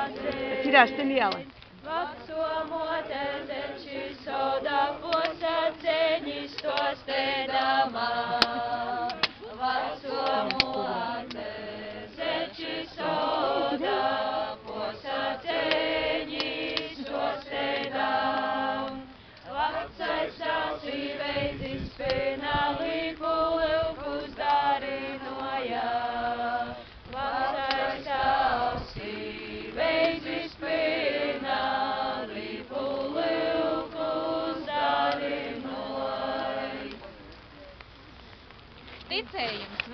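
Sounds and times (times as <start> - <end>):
women singing together: 0.0 - 37.0.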